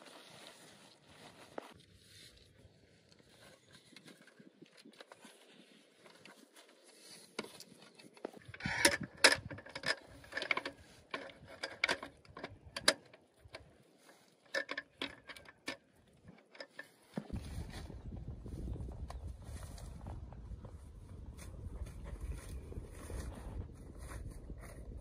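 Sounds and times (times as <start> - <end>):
clicks and light knocks: 7.3 - 13.7, 14.4 - 17.4.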